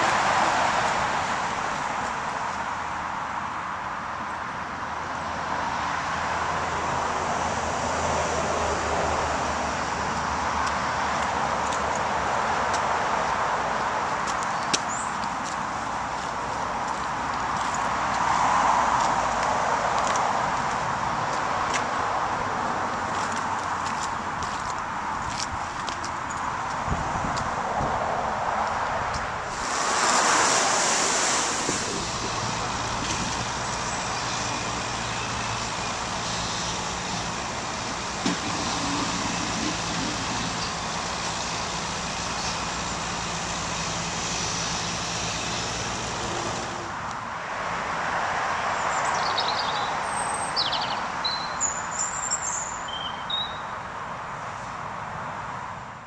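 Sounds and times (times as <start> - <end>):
diesel engines humming: 0.0 - 48.1
rushing noise: 26.4 - 47.0.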